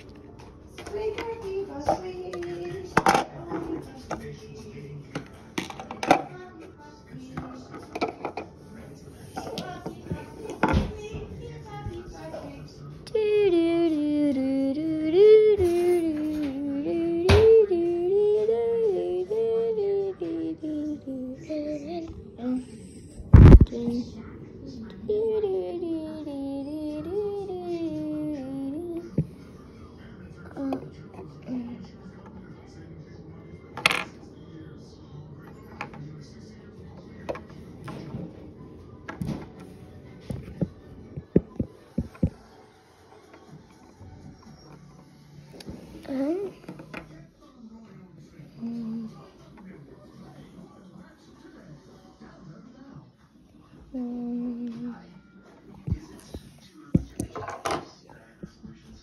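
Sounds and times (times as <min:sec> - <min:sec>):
girl singing: 0:13.1 - 0:22.9, 0:25.0 - 0:29.2.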